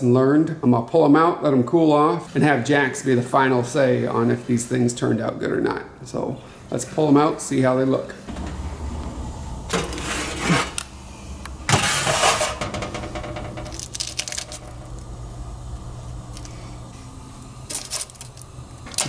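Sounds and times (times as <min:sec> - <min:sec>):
low steady hum: 0:00.0 - 0:19.0
baking sheet clattering: 0:09.7 - 0:10.8, 0:11.7 - 0:14.8.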